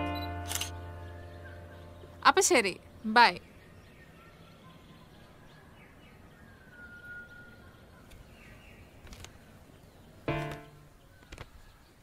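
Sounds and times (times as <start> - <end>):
birds chirping and whistling: 0.1 - 2.2, 3.4 - 12.0
small clicks: 9.0 - 9.4.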